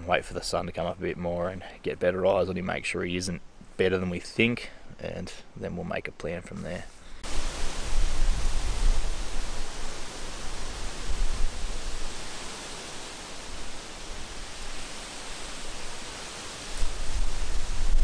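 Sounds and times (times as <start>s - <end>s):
wind buffeting microphone: 7.2s - 12.5s, 16.6s - 18.0s.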